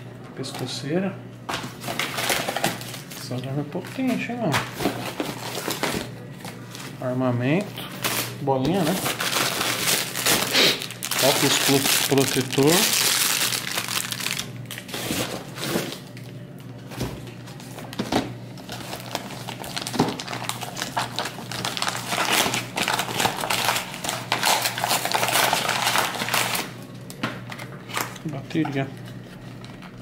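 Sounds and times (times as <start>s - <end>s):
paper and plastic crinkling: 1.5s - 26.8s.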